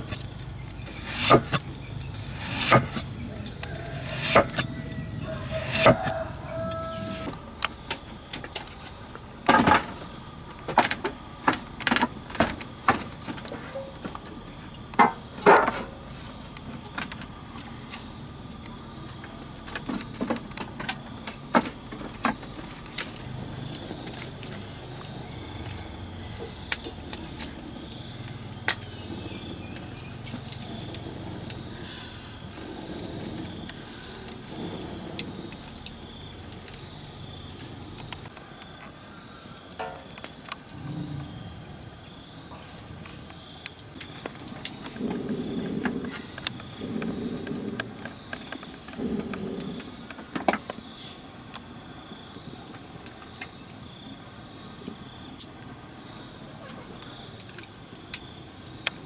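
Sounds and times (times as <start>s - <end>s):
firewood and metal pan clattering: 0.0s - 32.5s, 39.7s - 40.7s
insects droning: 0.0s - 59.0s.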